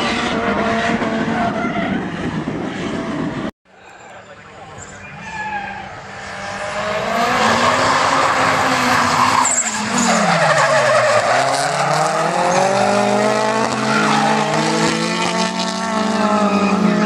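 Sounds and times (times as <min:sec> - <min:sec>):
car engines revving hard: 0:00.0 - 0:03.5, 0:06.0 - 0:17.0
tyres screeching: 0:04.8 - 0:15.3.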